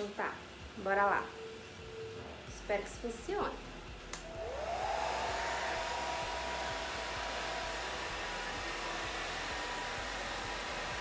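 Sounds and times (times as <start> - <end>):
hair dryer switch click: 4.1 - 4.4
hair dryer motor whine: 4.1 - 11.0
rush of blowing air: 4.2 - 11.0.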